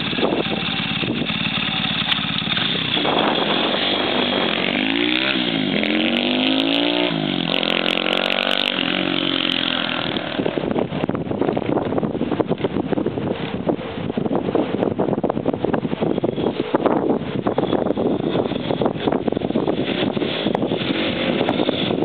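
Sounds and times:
motorbike engine accelerating: 0.0 - 12.0, 17.4 - 22.0.

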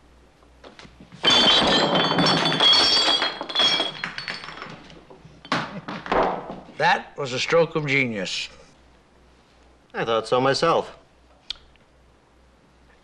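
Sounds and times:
glass mugs clinking: 1.2 - 5.7.

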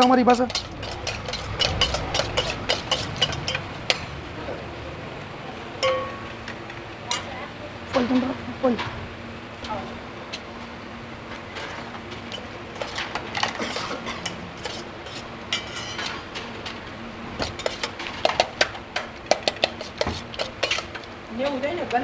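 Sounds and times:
spoon stirring and scraping pot: 0.0 - 4.1, 12.8 - 16.3, 19.3 - 21.1.

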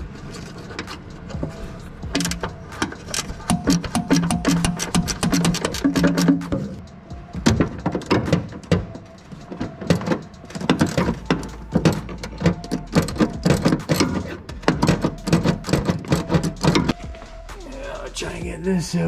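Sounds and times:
socket ratchet clicking: 2.1 - 17.0.

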